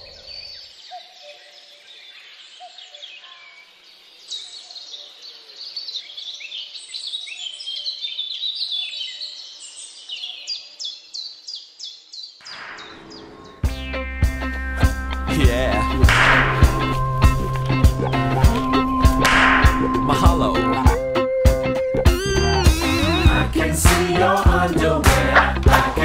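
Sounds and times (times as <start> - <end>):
birds chirping: 0.0 - 23.6
music with a beat: 13.6 - 26.0.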